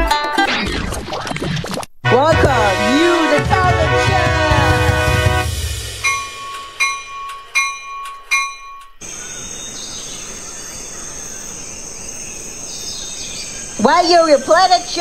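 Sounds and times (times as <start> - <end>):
ringing bell-like notes: 5.5 - 9.9
crickets chirping: 6.0 - 15.0.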